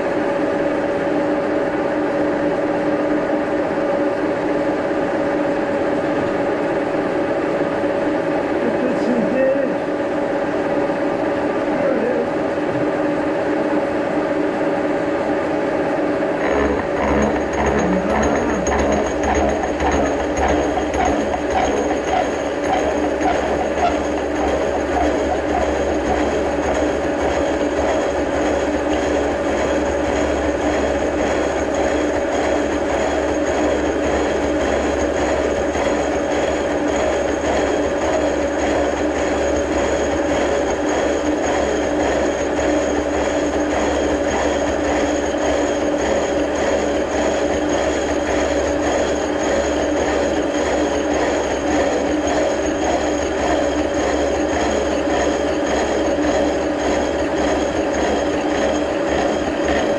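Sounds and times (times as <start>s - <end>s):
milling machine hum: 0.0s - 59.9s
cutter teeth clattering on metal: 16.4s - 26.4s.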